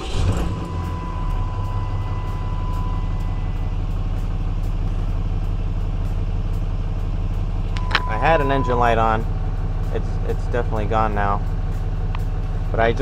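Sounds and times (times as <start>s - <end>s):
diesel engine idling: 0.0s - 13.0s
thin high tone: 0.1s - 4.5s, 7.7s - 10.5s.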